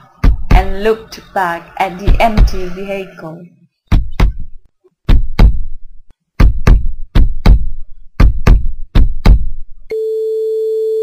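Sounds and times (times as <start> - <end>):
heartbeat thumps: 0.2 - 0.9, 2.0 - 2.8, 3.9 - 5.8, 6.4 - 9.7.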